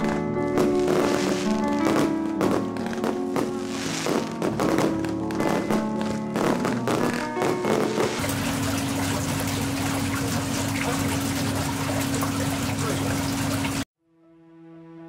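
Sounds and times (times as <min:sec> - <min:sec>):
water rushing over windshield: 0:08.0 - 0:13.9.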